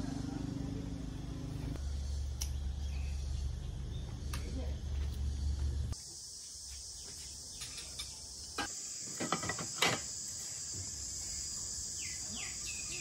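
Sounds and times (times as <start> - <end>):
high-pitched insect chorus: 1.8 - 13.0
bird chirping: 2.4 - 4.7, 11.9 - 13.0.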